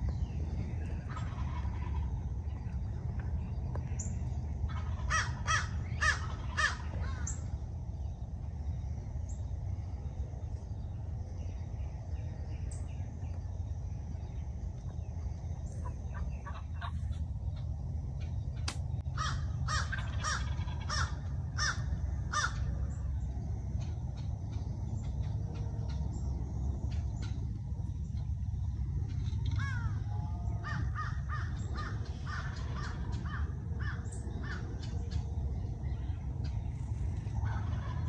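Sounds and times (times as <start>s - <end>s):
low rumble: 0.0s - 38.0s
crow cawing: 4.7s - 7.4s, 19.2s - 22.7s, 29.6s - 34.7s.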